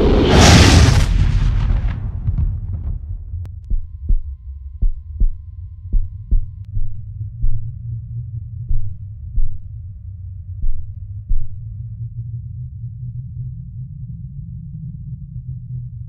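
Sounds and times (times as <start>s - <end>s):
heartbeat-like double thump: 2.3s - 7.8s, 8.7s - 9.8s, 10.6s - 11.7s
low rumbling drone: 2.3s - 16.0s.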